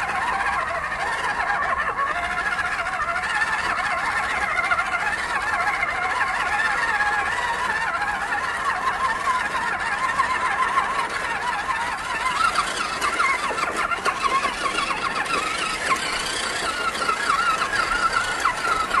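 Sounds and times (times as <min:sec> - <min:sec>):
toy truck motor whining: 0:00.0 - 0:19.0.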